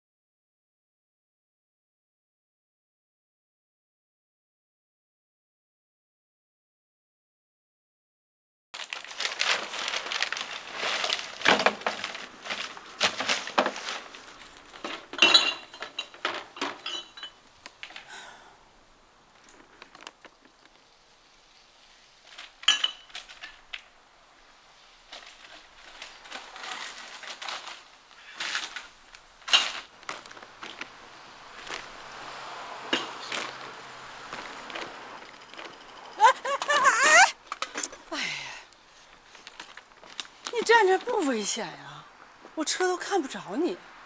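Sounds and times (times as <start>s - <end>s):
bottles clinking and rattling: 14.7s - 17.4s, 22.6s - 23.6s.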